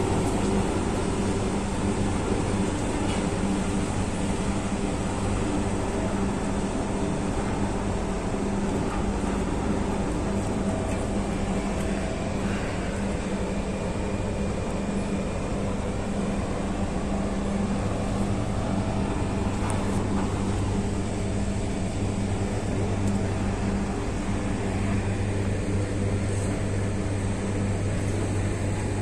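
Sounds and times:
diesel tractor engine running: 16.2s - 29.0s.

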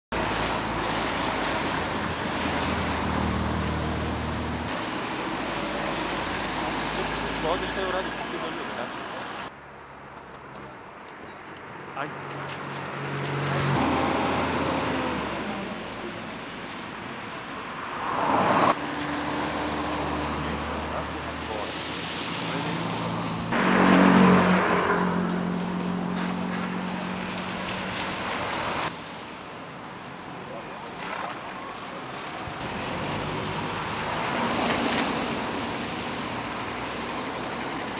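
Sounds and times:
vehicle passing by: 12.0s - 16.4s, 17.6s - 29.0s.

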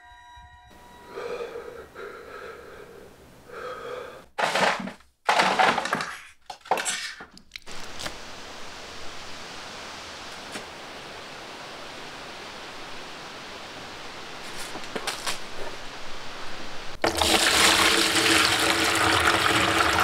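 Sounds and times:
steady hiss: 7.6s - 17.0s.

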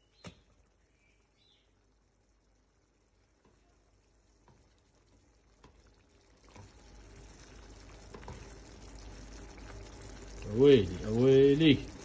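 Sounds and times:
spatula tapping pan: 3.3s - 3.6s, 4.4s - 4.8s, 5.5s - 5.9s, 8.0s - 8.6s.

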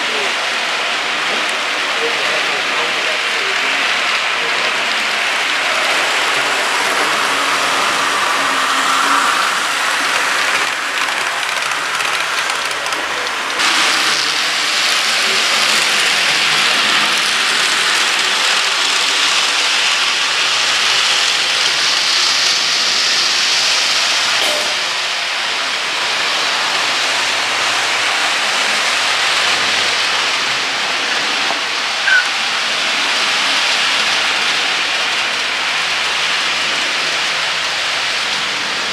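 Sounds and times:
model train wheels on rails: 0.0s - 38.9s
brief squeak: 32.0s - 32.3s.

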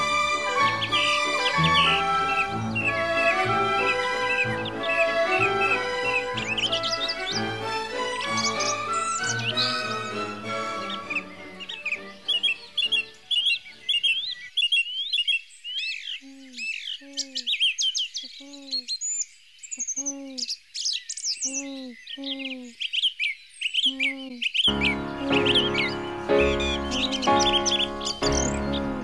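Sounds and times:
soft music: 0.0s - 14.0s, 24.7s - 29.0s
lower falling bird call: 0.0s - 19.0s, 23.7s - 29.0s
small songbirds chirping: 0.0s - 29.0s.

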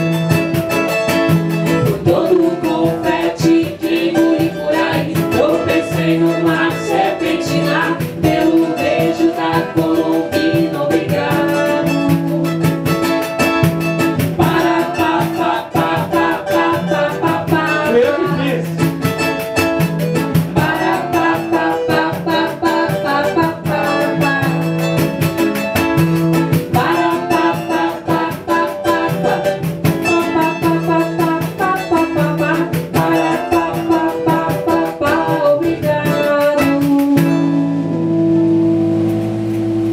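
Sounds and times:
hand percussion: 0.0s - 38.0s
strummed guitar: 0.0s - 39.9s
woman singing: 1.8s - 12.5s, 14.4s - 18.5s, 20.5s - 24.8s, 26.6s - 37.7s.

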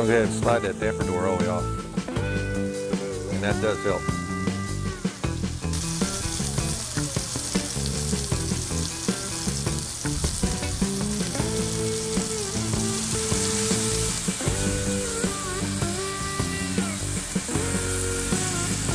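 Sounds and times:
meat sizzling in oil: 4.4s - 18.9s.

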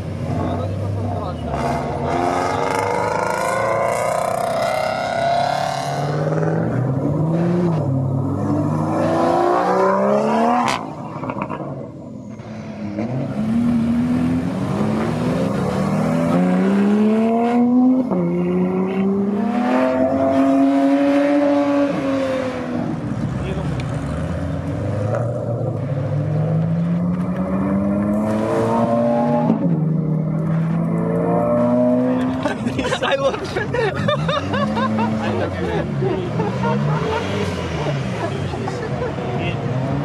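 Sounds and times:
car engine accelerating hard: 0.3s - 11.8s, 12.6s - 32.8s, 34.0s - 40.0s.

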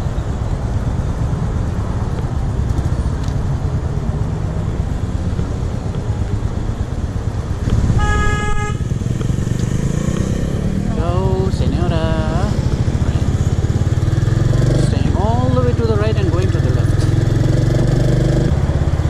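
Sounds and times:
road traffic rumble: 0.0s - 19.0s
vehicle horn honk: 7.9s - 8.9s.

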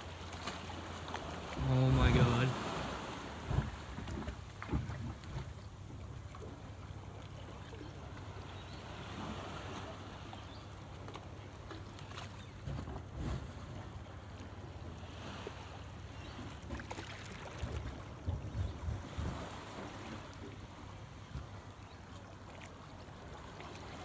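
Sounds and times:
water lapping at shoreline: 0.0s - 24.0s
wind rumble on microphone: 1.6s - 6.0s, 17.6s - 20.3s.

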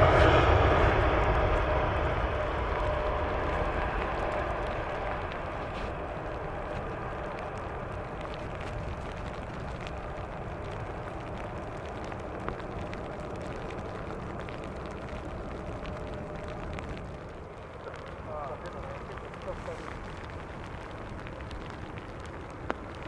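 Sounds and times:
jet engine roar: 0.0s - 11.6s.

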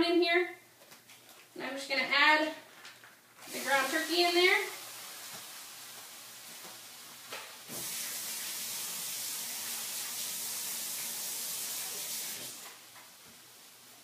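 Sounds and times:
faucet water running into sink: 3.4s - 13.2s.

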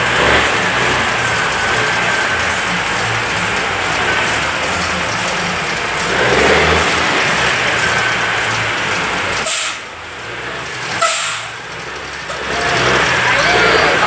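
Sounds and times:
diesel truck engine revving: 0.0s - 14.0s
short loud hiss: 9.4s - 9.8s.

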